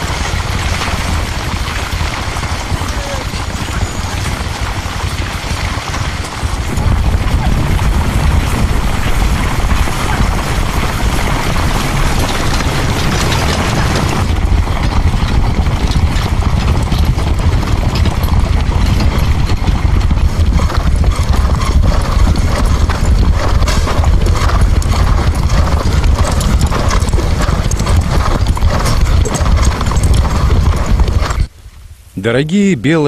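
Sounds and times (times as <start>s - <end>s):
horse hooves galloping: 0.0s - 31.5s
low rumble: 6.2s - 32.0s.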